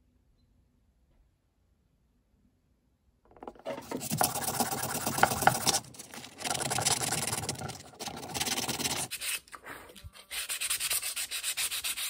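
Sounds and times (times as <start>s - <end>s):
sandpaper rubbing on wood: 3.7s - 9.5s, 10.2s - 12.0s.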